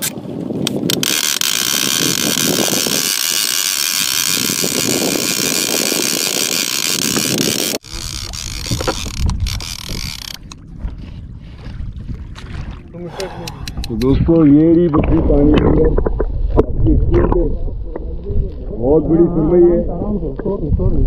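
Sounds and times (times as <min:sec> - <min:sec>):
water: 0:00.0 - 0:21.0
wind: 0:00.0 - 0:21.0
fishing reel ratcheting whirr: 0:00.9 - 0:10.6.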